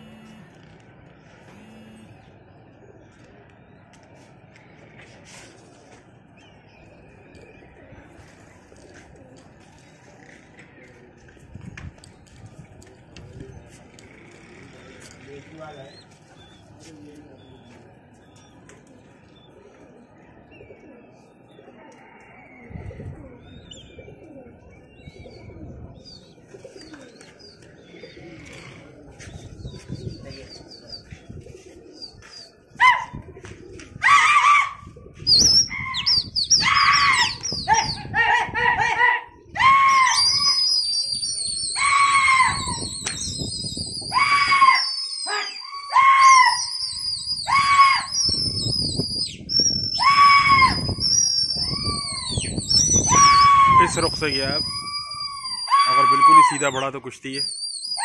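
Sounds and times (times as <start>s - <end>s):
high warbling whistles: 40.0s - 58.0s
person shouting drawn-out calls: 55.7s - 56.6s.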